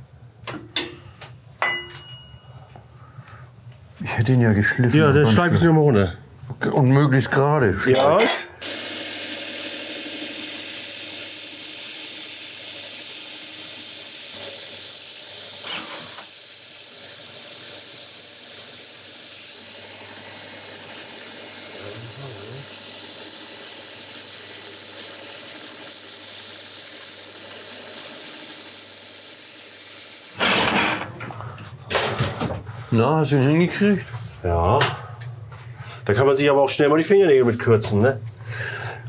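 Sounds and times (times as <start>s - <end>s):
belt sander grinding: 8.6s - 30.4s.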